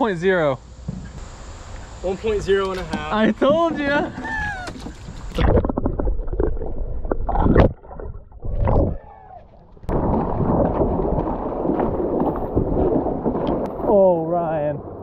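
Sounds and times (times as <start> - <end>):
water sloshing and splashing: 2.7 - 14.1.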